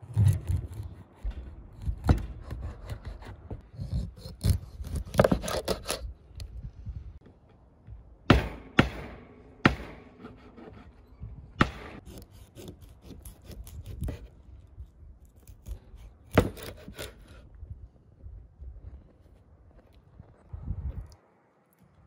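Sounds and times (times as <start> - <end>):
knife sawing through fish: 2.6 - 6.0, 12.0 - 14.3.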